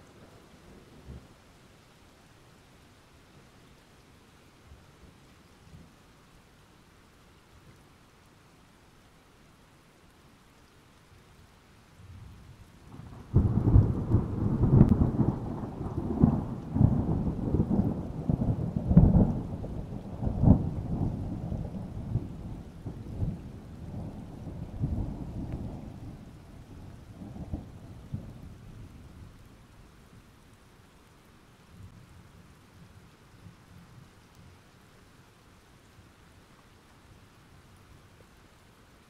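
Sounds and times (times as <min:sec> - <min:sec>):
rain: 0:00.0 - 0:39.0
thunder rumbling and cracking: 0:12.9 - 0:29.0.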